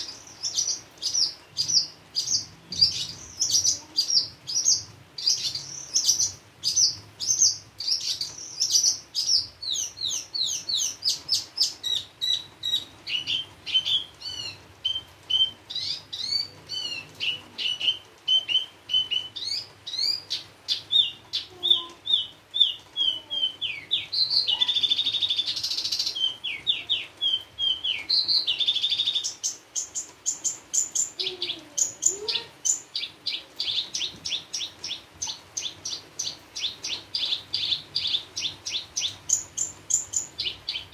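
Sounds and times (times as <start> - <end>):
bird singing chirps and whistles: 4.7 - 20.2, 20.8 - 29.5.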